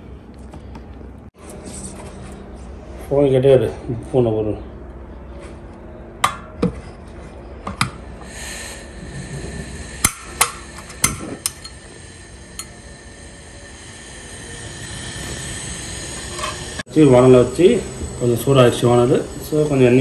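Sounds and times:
gas hissing through burner: 7.7 - 20.0
gas stove igniter clicks: 10.0 - 11.8.

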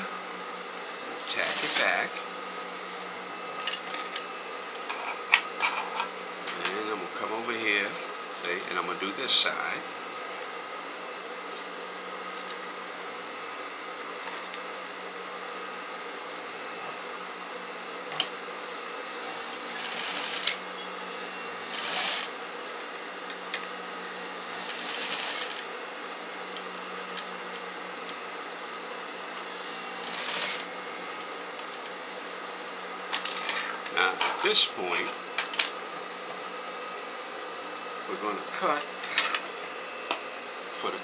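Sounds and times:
steady hum: 0.0 - 41.0
sewing machine stitching: 1.2 - 2.0, 19.2 - 20.6, 21.6 - 22.3, 24.5 - 25.6, 29.8 - 30.7.

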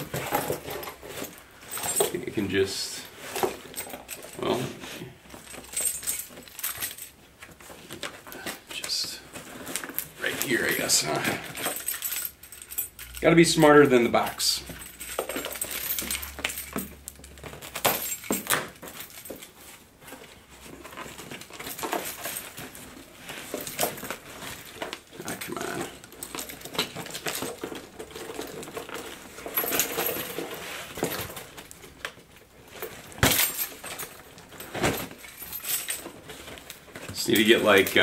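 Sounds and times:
cardboard rustling: 4.5 - 11.8, 15.2 - 38.0
keys jangling: 5.4 - 7.2, 10.0 - 13.9, 14.6 - 19.6, 21.4 - 31.6, 32.8 - 38.0.

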